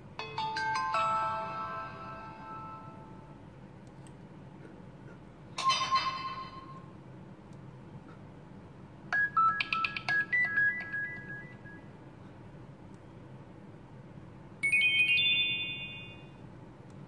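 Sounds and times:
ringing phone chime: 0:00.2 - 0:03.3, 0:09.2 - 0:11.8, 0:14.6 - 0:16.4.

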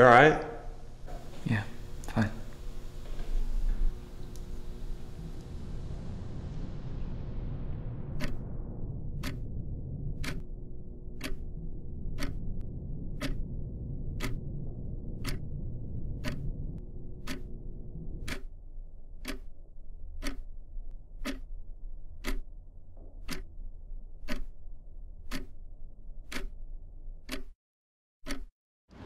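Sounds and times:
low hum: 0:00.0 - 0:27.3
wall clock ticking: 0:08.1 - 0:08.4, 0:09.2 - 0:09.5, 0:10.1 - 0:10.4, 0:11.0 - 0:17.6, 0:18.2 - 0:18.5, 0:19.2 - 0:24.6, 0:25.2 - 0:26.6, 0:27.2 - 0:27.6, 0:28.2 - 0:28.5.

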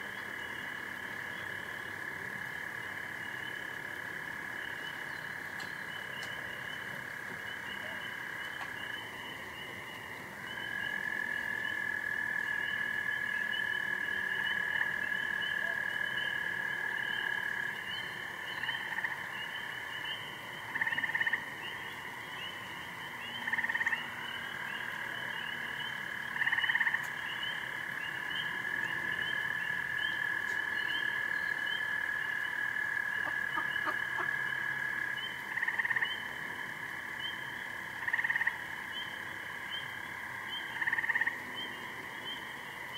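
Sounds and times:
frogs chirping: 0:00.0 - 0:42.9
loud frog calls: 0:00.0 - 0:42.9
frog trills: 0:00.1 - 0:36.4, 0:37.1 - 0:42.9.

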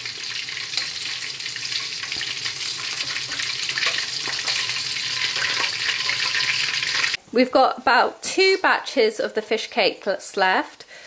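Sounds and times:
deep-frying sizzle with crackling: 0:00.0 - 0:07.2.

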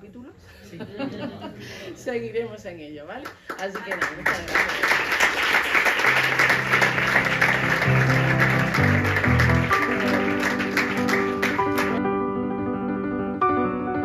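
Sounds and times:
audience clapping: 0:03.2 - 0:12.0
background music: 0:05.9 - 0:14.0.

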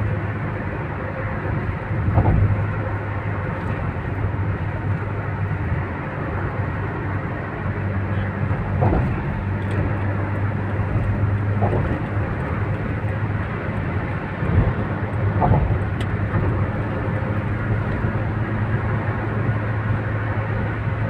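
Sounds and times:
tyre and engine drone: 0:00.0 - 0:21.0
tyres thumping over road joints: 0:08.5 - 0:10.0.

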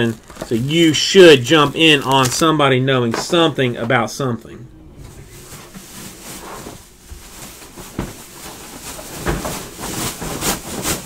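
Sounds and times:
foil wrappers crinkling: 0:00.0 - 0:02.6, 0:05.3 - 0:11.0.

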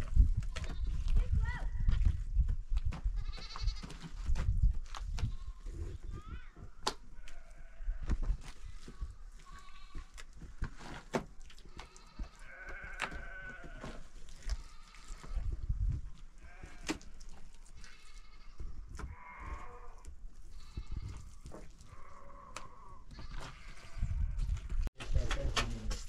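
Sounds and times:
livestock bleating: 0:03.2 - 0:03.8, 0:07.2 - 0:08.0, 0:08.8 - 0:10.2, 0:11.7 - 0:15.5, 0:16.4 - 0:17.0, 0:17.8 - 0:24.4.

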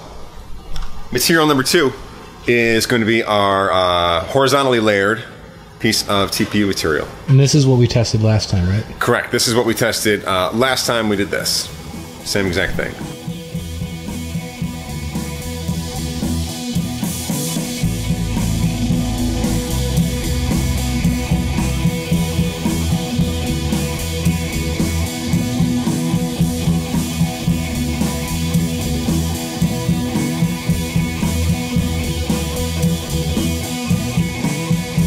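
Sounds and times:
rock music with electric guitar: 0:11.7 - 0:35.0.

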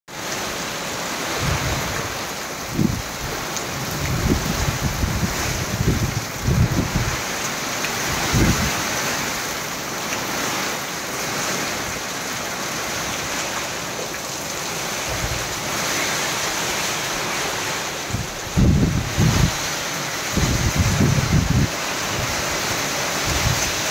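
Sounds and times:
heavy rain hissing: 0:00.1 - 0:23.9
wind buffeting microphone: 0:01.3 - 0:07.3, 0:08.0 - 0:09.4, 0:15.0 - 0:23.9.

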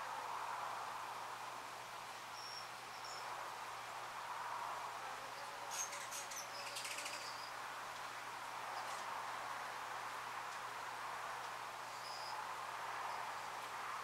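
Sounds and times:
steady background hiss: 0:00.0 - 0:14.0
small bird chirping: 0:02.3 - 0:03.3, 0:05.4 - 0:07.6.

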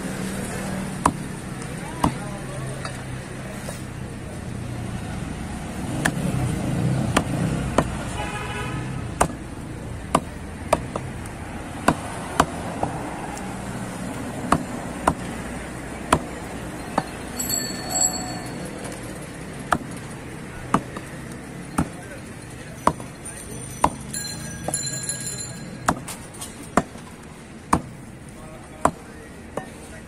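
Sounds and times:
street and market noise: 0:00.0 - 0:30.0
cleaver chopping on wooden block: 0:01.0 - 0:01.3, 0:02.0 - 0:02.2, 0:06.0 - 0:06.3, 0:07.0 - 0:08.0, 0:09.2 - 0:09.5, 0:10.1 - 0:11.2, 0:11.8 - 0:13.0, 0:14.4 - 0:15.3, 0:16.1 - 0:16.4, 0:19.7 - 0:20.0, 0:20.7 - 0:21.1, 0:21.8 - 0:22.0, 0:25.8 - 0:26.1, 0:27.7 - 0:28.0, 0:28.8 - 0:29.0.

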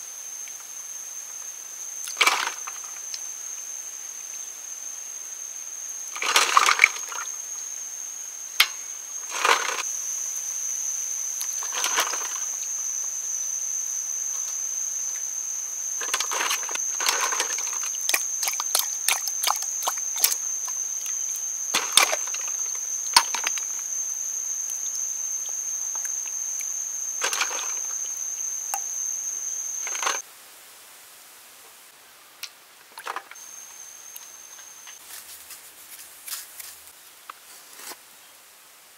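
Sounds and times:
high-pitched whine: 0:04.8 - 0:30.2
water splashing in metal bowl: 0:16.0 - 0:23.8.

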